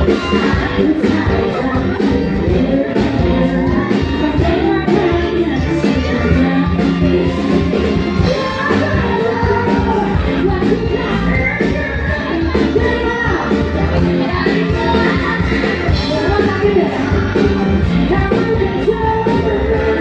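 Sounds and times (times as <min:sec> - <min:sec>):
live band music: 0:00.0 - 0:20.0
woman singing: 0:00.0 - 0:20.0.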